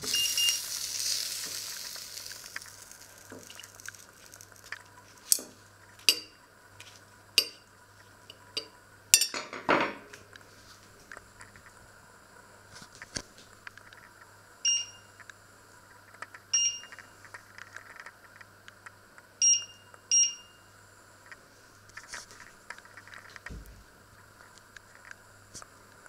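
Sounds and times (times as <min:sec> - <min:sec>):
short high beeps: 0:00.0 - 0:00.6.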